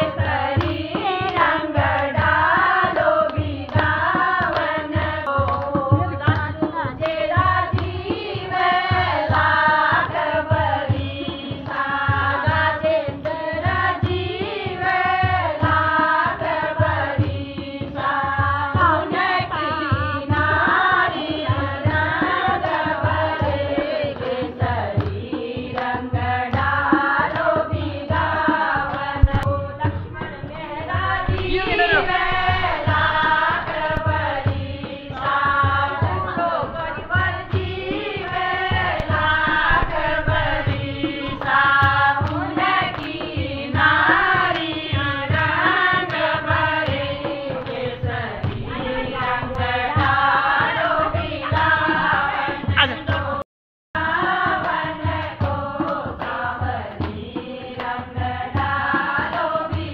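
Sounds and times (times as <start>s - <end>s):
women singing together: 0.0s - 53.4s, 54.0s - 59.9s
steady low beat: 29.2s - 41.4s.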